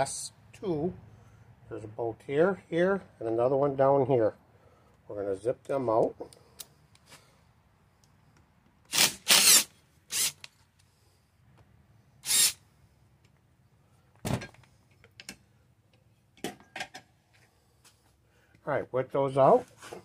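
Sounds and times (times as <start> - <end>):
impact driver spinning bolts: 8.9 - 10.5.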